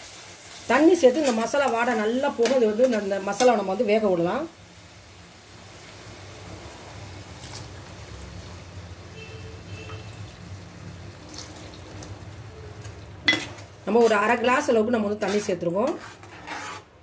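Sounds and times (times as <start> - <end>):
water pouring into a pan: 11.0 - 12.3.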